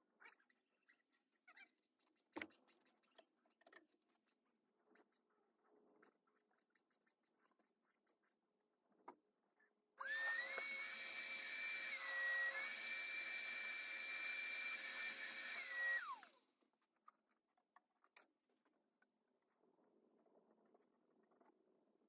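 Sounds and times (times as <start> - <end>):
electric motor high whine: 10.0 - 16.3.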